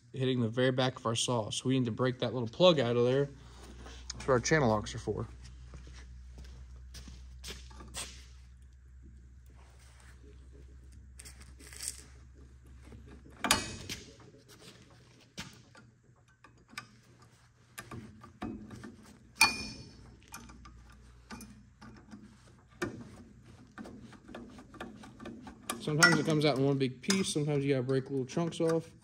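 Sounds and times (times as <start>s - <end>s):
sharp metal clanks: 19.4s - 20.5s, 25.8s - 27.5s
pliers clinking and scraping on steel: 25.7s - 27.4s.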